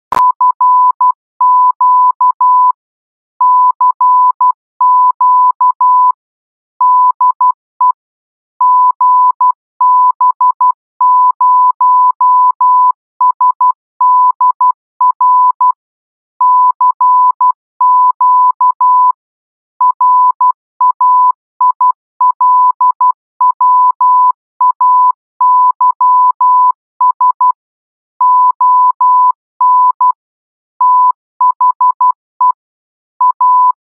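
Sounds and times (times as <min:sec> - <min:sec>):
morse code tone: 0:19.9 - 0:27.6, 0:28.2 - 0:30.2, 0:30.8 - 0:32.6, 0:33.2 - 0:33.8.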